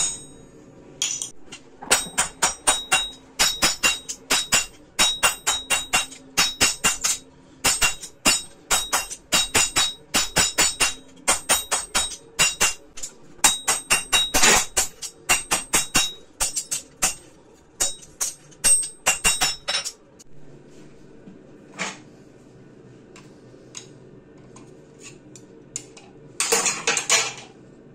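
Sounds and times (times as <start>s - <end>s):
hammer blows on anvil: 1.9s - 20.0s.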